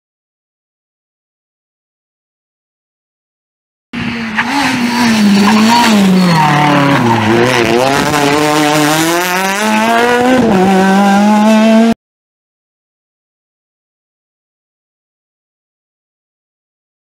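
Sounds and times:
rally car engine at high revs: 4.0s - 12.0s.

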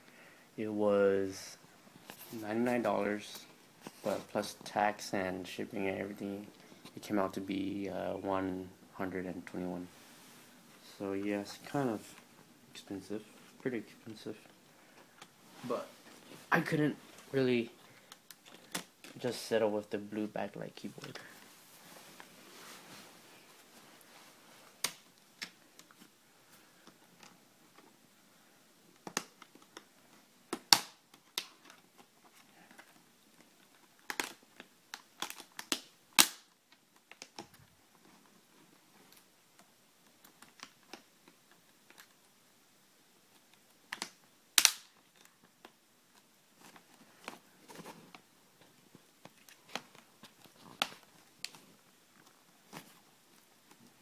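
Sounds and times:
handling rustle: 45.1s - 54.0s.

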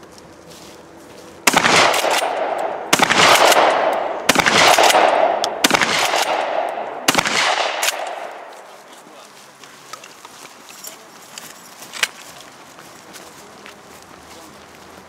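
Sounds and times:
shotgun shots: 1.4s - 8.5s.

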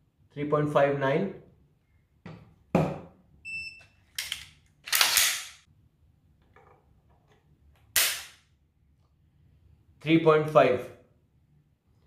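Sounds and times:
gauge beep: 3.4s - 4.0s
rifle handling clatter: 4.1s - 5.7s.

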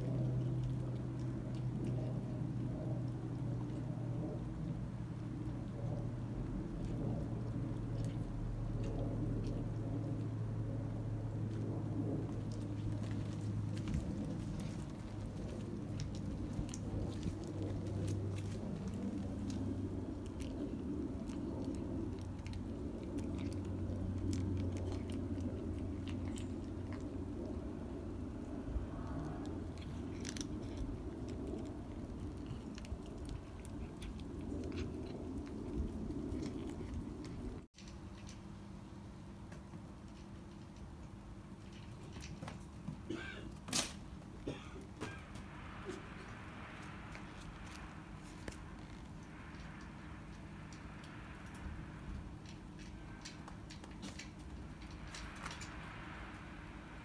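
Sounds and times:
cat crunching dry food: 0.0s - 42.8s, 44.8s - 56.9s
low background hum: 0.0s - 57.0s.

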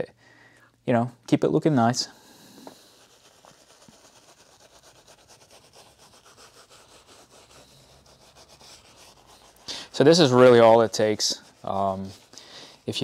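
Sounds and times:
brush scrubbing leather seat: 2.9s - 13.0s.

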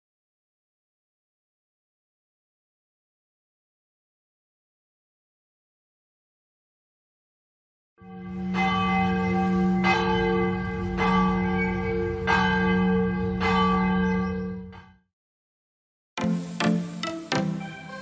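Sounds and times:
large church bell tolling: 8.0s - 15.0s.

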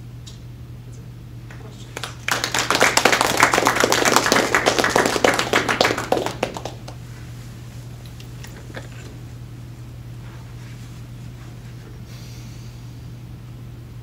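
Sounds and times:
audience clapping: 1.5s - 7.0s.

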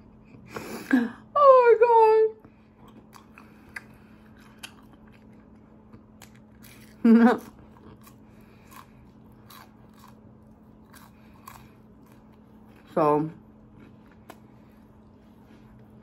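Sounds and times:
chewing and crunching: 2.5s - 16.0s.

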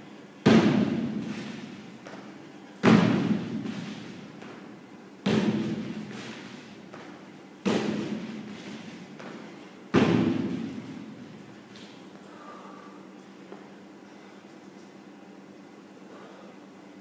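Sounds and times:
feet thudding on plywood box: 0.5s - 4.6s, 5.2s - 10.9s.

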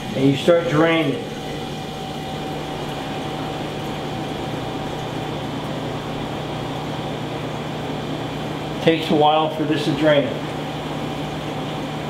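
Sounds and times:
dishwasher draining: 0.0s - 6.3s.

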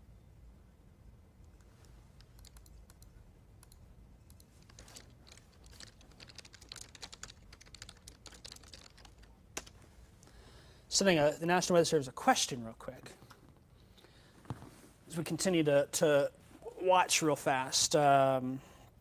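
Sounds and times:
typing on computer keyboard: 1.5s - 9.8s.

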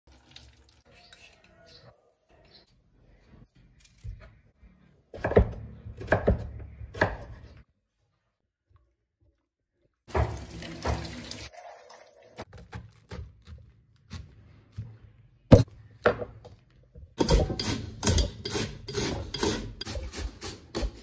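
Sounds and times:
box grater scraping: 17.2s - 21.0s.

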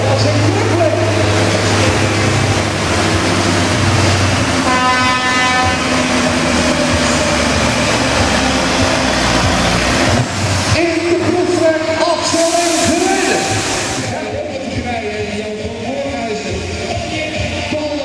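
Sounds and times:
diesel truck engine under load: 0.0s - 18.0s
air horn: 4.6s - 6.0s.

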